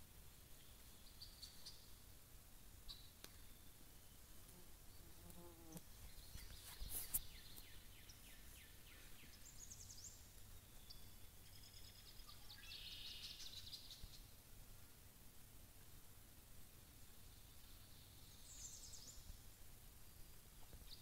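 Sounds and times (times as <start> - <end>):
distant songbirds trilling: 5.9 - 14.4, 17.2 - 19.4.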